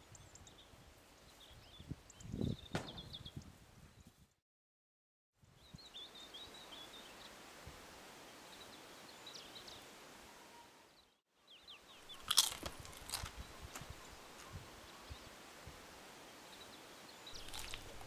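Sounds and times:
person crunching a snack: 0:12.1 - 0:13.4, 0:17.4 - 0:18.0
bird chirps: 0:16.5 - 0:18.0.

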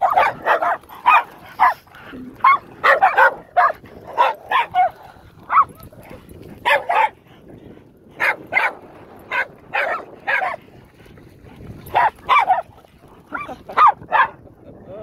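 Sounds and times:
dog barking: 0:00.0 - 0:01.8, 0:02.4 - 0:05.8, 0:06.6 - 0:07.2, 0:08.2 - 0:10.6, 0:11.9 - 0:12.7, 0:13.3 - 0:14.4.

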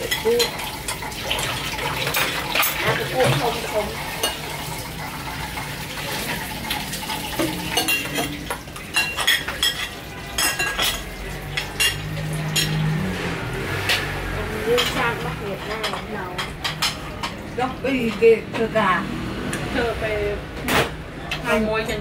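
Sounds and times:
metal spoons clinking on plates: 0:00.0 - 0:04.6, 0:06.1 - 0:13.0, 0:13.9 - 0:18.4.

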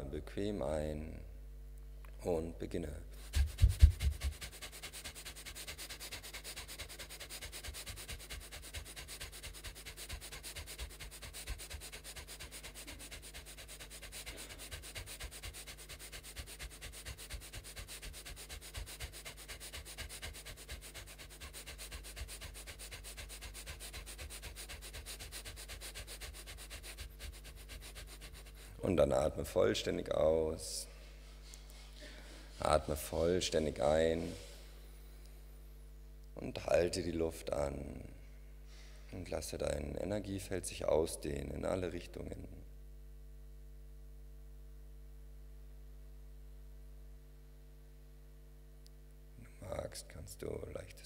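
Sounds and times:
fast forceful breathing: 0:10.4 - 0:15.4.

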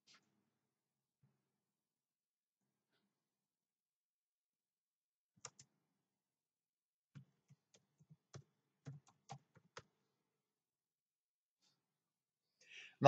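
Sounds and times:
faint keyboard typing: 0:07.5 - 0:09.9.

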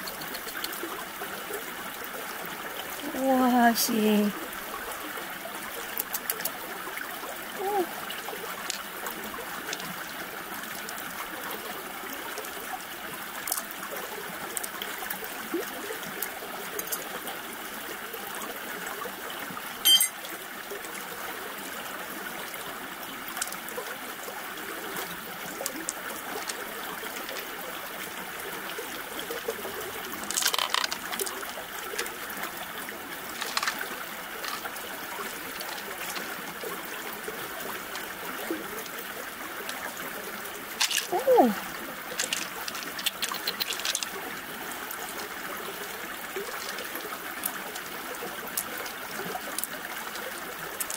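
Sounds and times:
stream water trickling: 0:00.0 - 0:50.9
shells clicking: 0:30.3 - 0:31.3, 0:33.4 - 0:33.8, 0:40.8 - 0:41.1, 0:42.2 - 0:44.1.

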